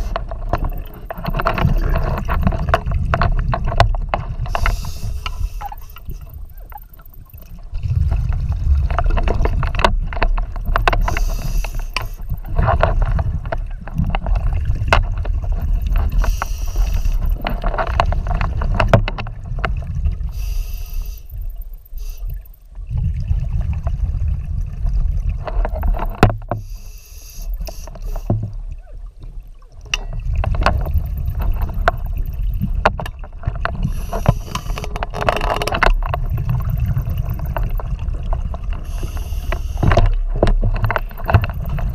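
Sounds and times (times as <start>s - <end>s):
rumbling exhaled bubbles: 0.0s - 11.5s, 12.3s - 20.4s, 22.8s - 26.5s, 28.4s - 41.9s
short breathing hisses: 20.4s - 21.3s.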